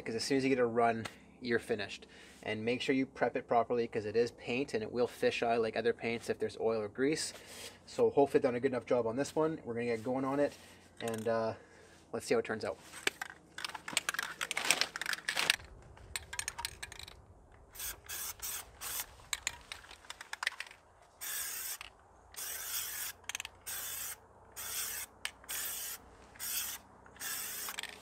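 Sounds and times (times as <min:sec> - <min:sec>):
aerosol spray hissing bursts: 0:17.8 - 0:19.1, 0:23.7 - 0:27.7.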